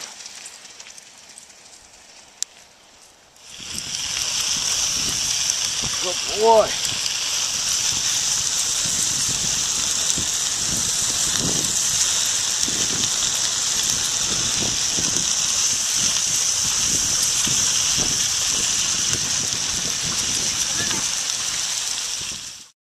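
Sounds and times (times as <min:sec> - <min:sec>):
bicycle tyres hissing on wet road: 0:00.0 - 0:22.7.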